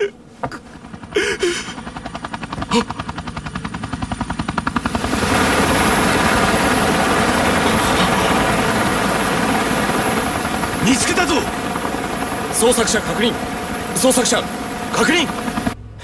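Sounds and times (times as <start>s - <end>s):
helicopter rotor beating: 0.2s - 16.0s.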